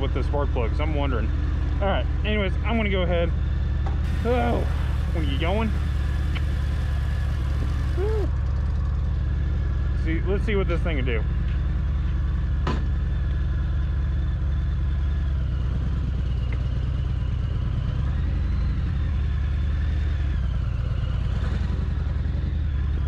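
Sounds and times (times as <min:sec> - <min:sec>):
motorcycle engine revving: 0:04.0 - 0:08.8.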